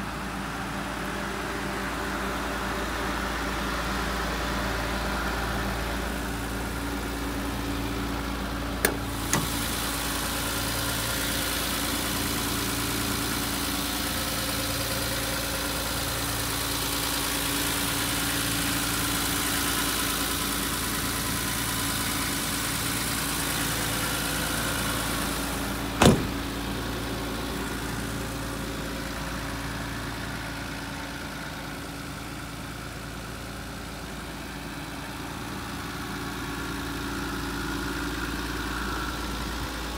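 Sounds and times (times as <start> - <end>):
diesel engine idling: 0.0 - 39.9
sharp knocks: 26.0 - 26.4.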